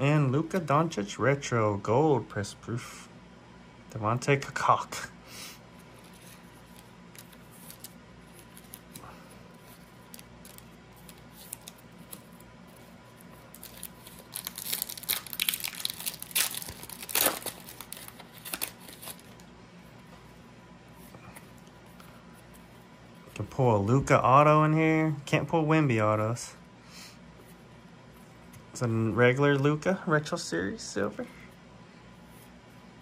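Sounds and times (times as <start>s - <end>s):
foil wrapper tearing and crinkling: 10.0s - 12.3s, 13.4s - 19.4s.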